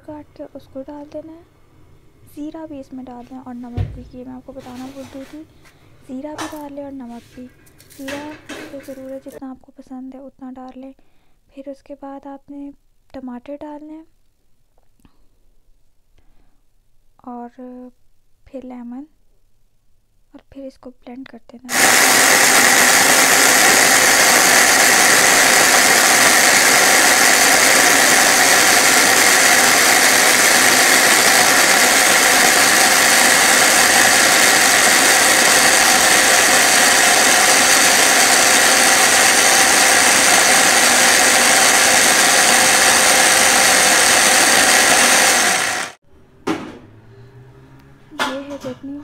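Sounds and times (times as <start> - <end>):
electric blender running: 7.9 - 9.1, 21.7 - 46.0.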